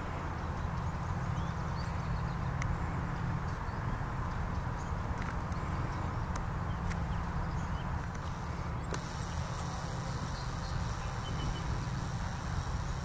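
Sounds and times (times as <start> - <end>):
constant low rumble: 0.0 - 13.0.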